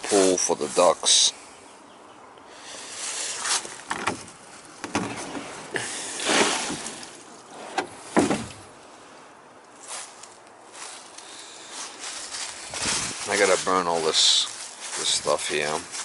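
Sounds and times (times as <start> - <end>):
plastic pool scraping and knocking: 3.5 - 8.6.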